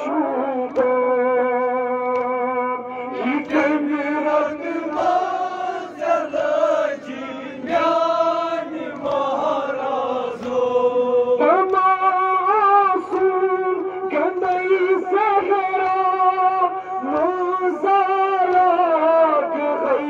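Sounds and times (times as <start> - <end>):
amplified lead voice singing: 0.0 - 20.0
men's voices chanting together: 3.1 - 20.0.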